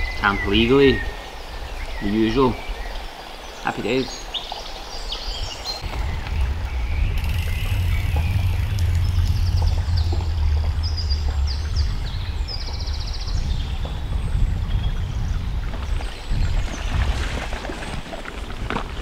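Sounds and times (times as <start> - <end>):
small birds singing: 0.0 - 18.0
wind rumbling on microphone: 4.7 - 19.0.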